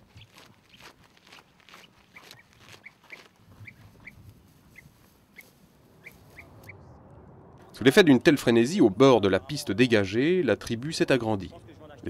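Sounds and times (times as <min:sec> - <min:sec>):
footsteps on dirt path: 0:00.0 - 0:06.6.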